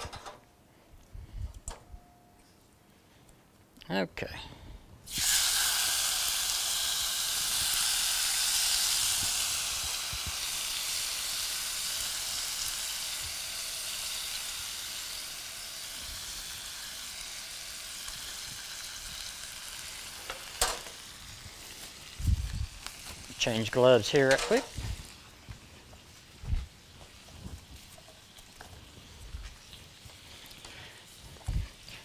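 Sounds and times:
meat sizzling in a skillet: 5.1s - 32.0s.

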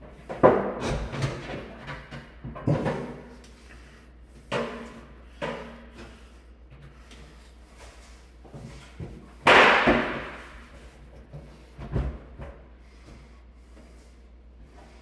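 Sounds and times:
knocks on clothes dryer body: 9.4s - 10.5s.

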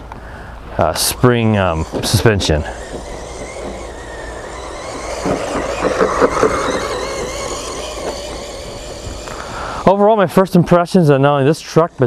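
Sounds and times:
drivetrain rattling: 0.6s - 12.0s
toy truck electric motor whining: 0.6s - 12.0s.

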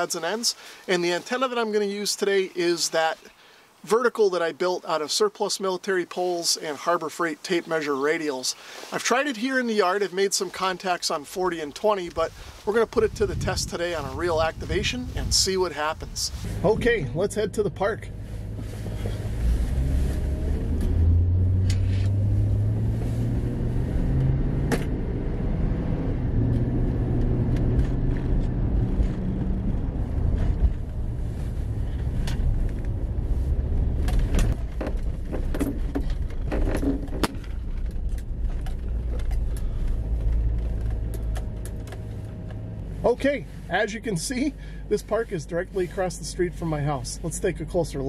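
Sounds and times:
car engine and road rumble: 9.9s - 48.0s.

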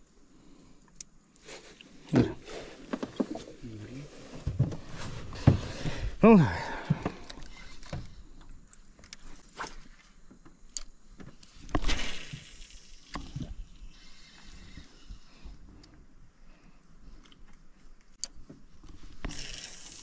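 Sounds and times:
short wordless voice: 3.6s - 4.2s, 6.2s - 7.0s.

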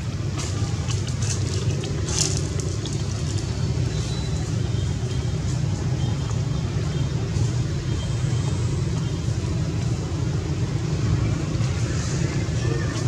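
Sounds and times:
steady low rumble: 0.0s - 5.9s.

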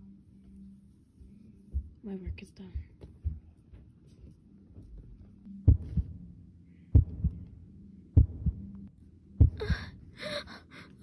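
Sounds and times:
faint low hum: 0.0s - 11.0s
heartbeat thumps: 1.7s - 4.0s, 4.8s - 6.3s, 6.9s - 7.5s, 8.2s - 8.8s, 9.4s - 10.0s.

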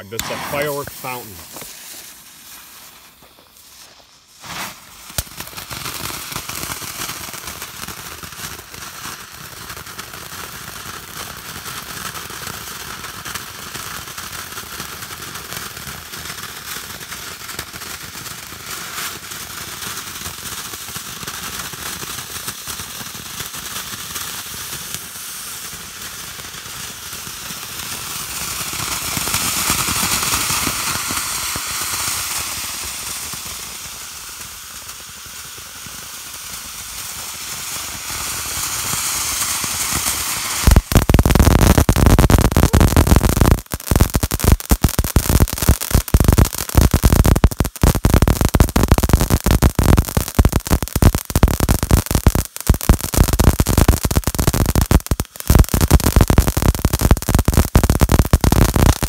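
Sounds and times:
firework fountain crackling hiss: 0.0s - 59.0s.

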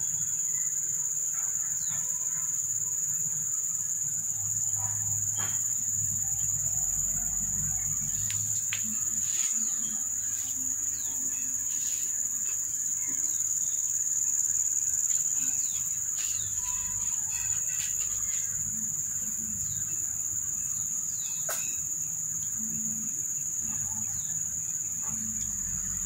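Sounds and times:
insect chirps: 0.0s - 26.0s
insects buzzing: 0.0s - 26.0s.

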